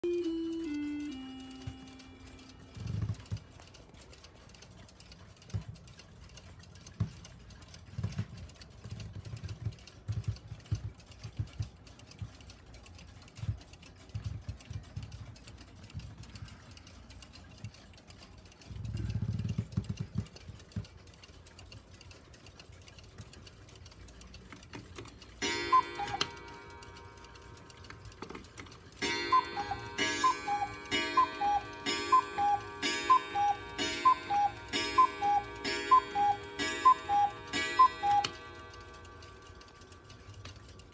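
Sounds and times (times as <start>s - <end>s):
two-note cuckoo calls: 0.0s - 2.9s, 25.4s - 40.2s
sustained ringing tone: 0.0s - 3.0s, 25.4s - 27.9s, 29.0s - 40.2s
cuckoo clock ticking: 0.0s - 40.9s.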